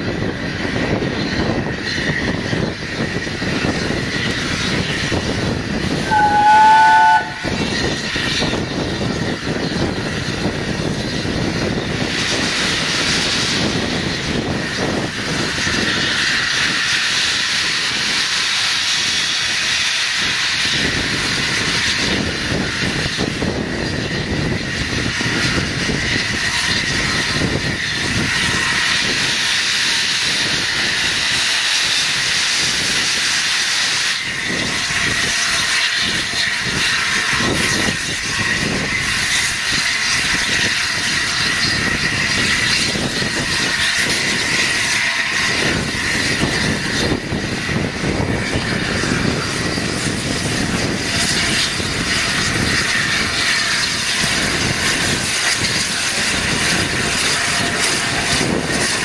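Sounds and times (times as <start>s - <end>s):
steam hissing: 0.0s - 59.0s.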